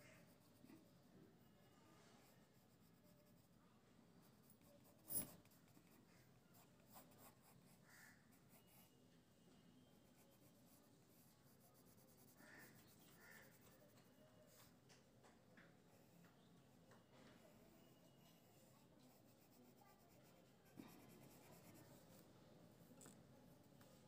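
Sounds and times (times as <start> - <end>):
pencil scratching on paper: 0.0 - 1.6, 2.2 - 3.6, 4.2 - 9.0, 10.0 - 14.8, 17.4 - 22.8.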